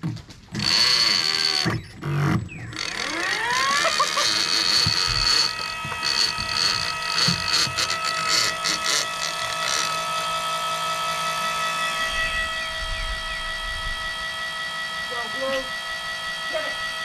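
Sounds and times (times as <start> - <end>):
electric fishing reel motor whining: 0.5 - 17.0.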